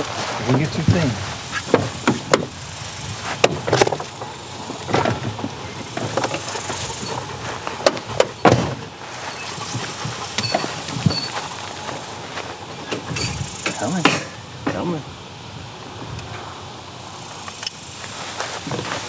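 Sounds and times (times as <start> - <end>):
truck doors knocking: 0.8 - 2.6, 3.4 - 8.9
plastic dog crate clunking: 4.8 - 7.2, 7.8 - 8.9.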